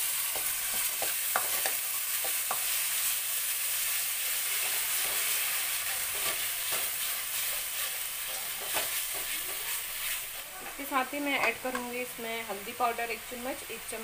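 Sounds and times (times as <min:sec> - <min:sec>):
masala sizzling in oil: 0:00.0 - 0:14.0
spatula scraping pan: 0:04.3 - 0:10.6.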